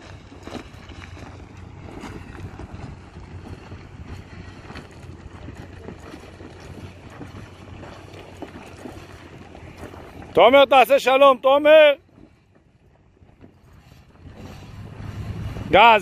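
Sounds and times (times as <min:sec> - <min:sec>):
gravel crunching under tyres: 0:00.0 - 0:10.4
wind buffeting microphone: 0:00.0 - 0:16.0.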